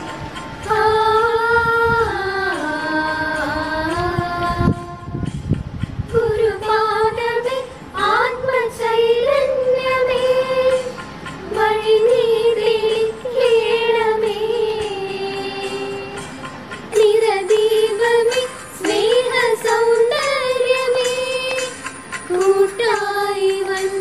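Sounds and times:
girls singing in unison: 0.0 - 5.3, 6.0 - 24.0.

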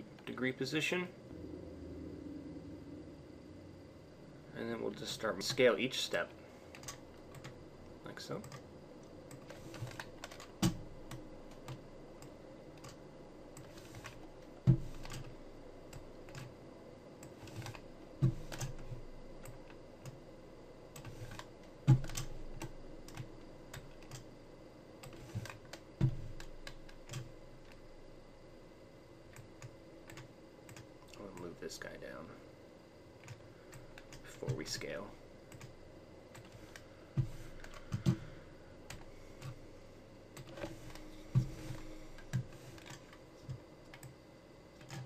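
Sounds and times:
faint steady hum: 0.0 - 45.0.

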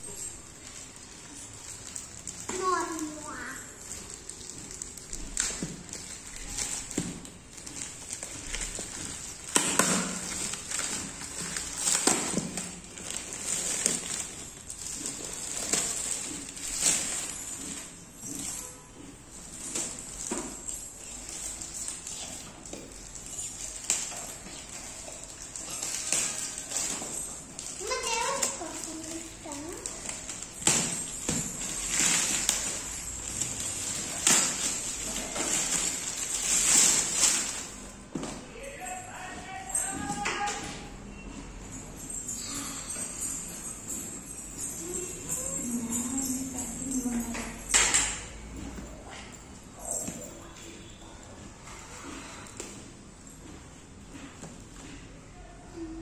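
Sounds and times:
plastic wrapping crinkling: 0.0 - 40.9
packaging rustling and tearing: 0.1 - 18.5, 19.4 - 38.2.

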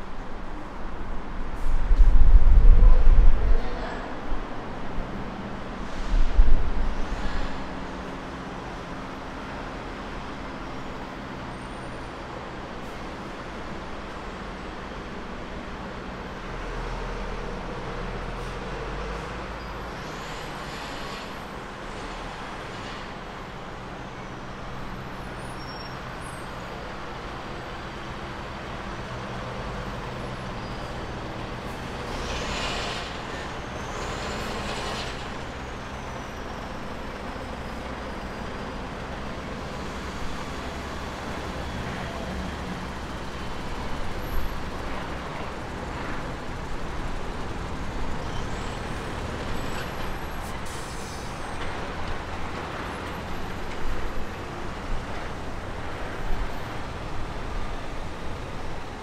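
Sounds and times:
idling diesel engines hum: 7.1 - 59.0
truck air brakes hiss: 30.4 - 38.4, 48.3 - 51.6.

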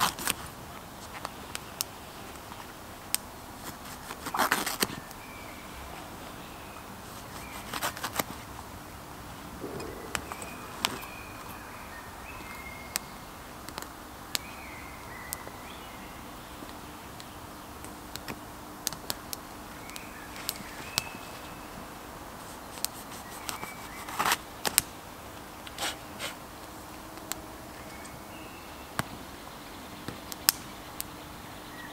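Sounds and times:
steady background hiss: 0.0 - 31.9
wood fire crackling and popping: 9.6 - 11.9, 17.9 - 21.1, 27.2 - 27.4, 30.2 - 31.1.

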